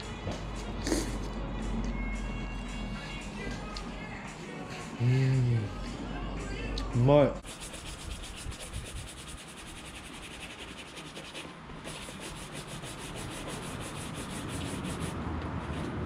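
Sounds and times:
shoe leather scrubbing: 7.4s - 15.2s.

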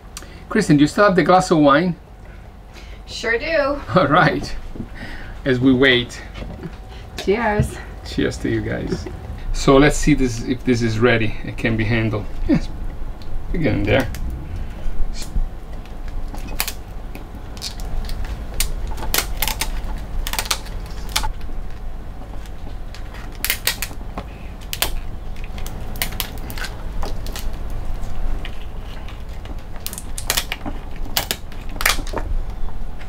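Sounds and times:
steady low hum: 0.0s - 33.0s
shears crunching through lobster shell: 15.2s - 32.6s.

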